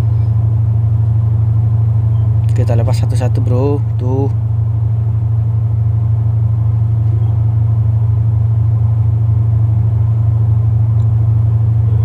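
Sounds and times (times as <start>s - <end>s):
ship engine machinery hum: 0.0s - 12.0s.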